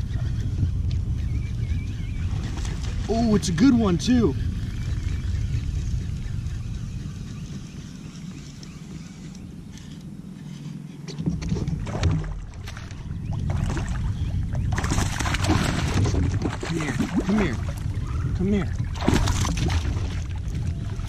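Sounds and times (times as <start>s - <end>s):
water splashing around a kayak: 11.0s - 21.0s.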